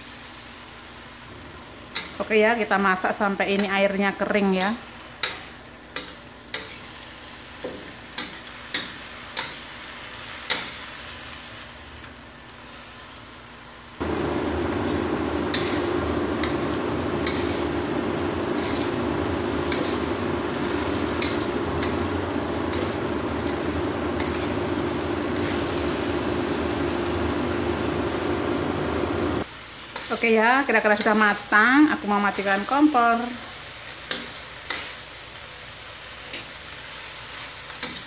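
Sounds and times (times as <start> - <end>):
faint sizzle: 0.0 - 38.0
steady hum with rushing noise: 14.0 - 29.5.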